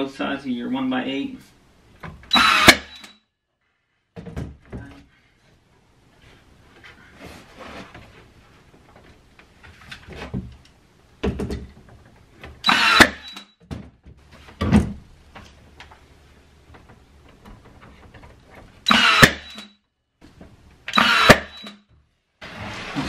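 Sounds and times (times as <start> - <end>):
nail gun firing: 2.3 - 3.1, 12.6 - 13.5, 18.9 - 19.7, 20.9 - 21.8.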